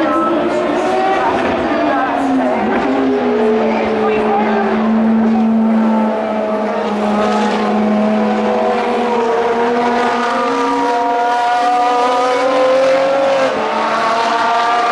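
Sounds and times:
race car engine screaming: 0:00.0 - 0:14.9.

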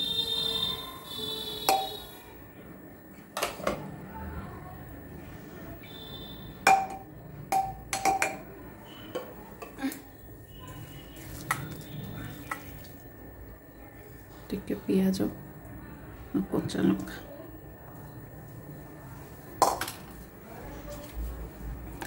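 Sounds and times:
high steady tone: 0:00.0 - 0:03.2.

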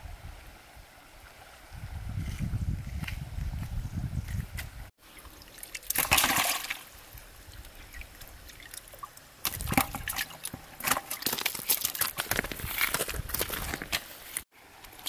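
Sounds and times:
water splashing in a plastic bucket: 0:05.0 - 0:14.0.

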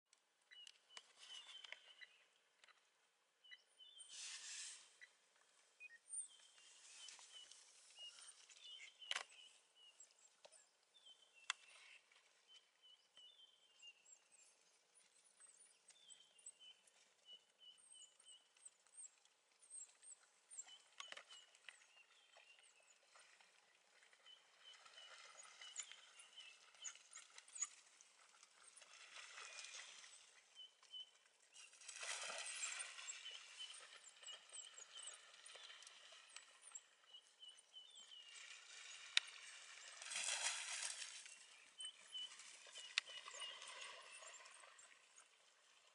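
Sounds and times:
rustling noise: 0:04.1 - 0:05.1.

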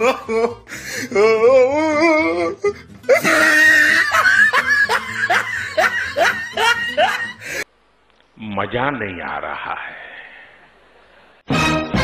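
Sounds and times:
music: 0:00.2 - 0:07.6, 0:11.5 - 0:12.0
loud laughter: 0:03.1 - 0:07.6.

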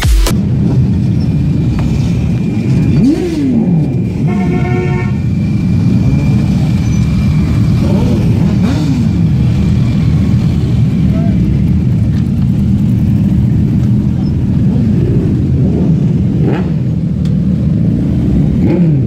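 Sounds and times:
vehicle engines passing: 0:00.3 - 0:19.0
engine revving: 0:02.4 - 0:11.0, 0:14.7 - 0:19.0
vehicle horn: 0:04.2 - 0:05.4.

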